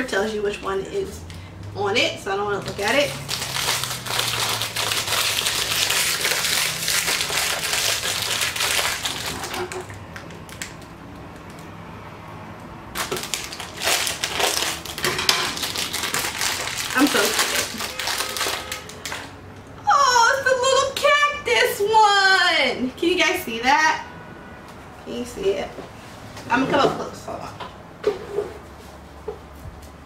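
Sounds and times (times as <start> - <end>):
foil wrapper crinkling: 2.7 - 11.5, 12.9 - 19.2.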